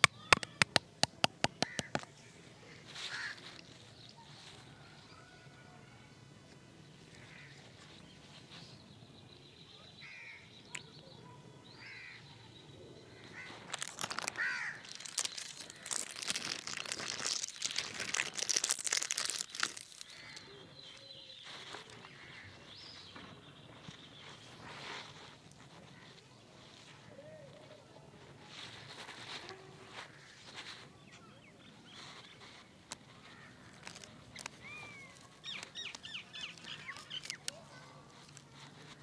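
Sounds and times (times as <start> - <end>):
plastic bag crinkling: 0.0 - 2.1, 13.4 - 22.1, 32.0 - 39.0.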